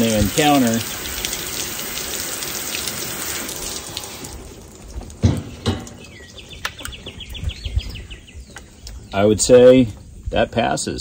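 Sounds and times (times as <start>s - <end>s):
water spray pelting metal: 0.0s - 6.0s
dull knocks: 5.1s - 6.0s
bird chirping rapidly: 5.4s - 9.8s.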